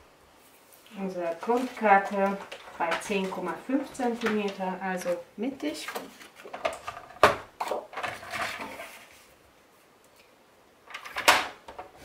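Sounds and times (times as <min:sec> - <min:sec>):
card stock rustling and sliding: 0:01.2 - 0:04.6.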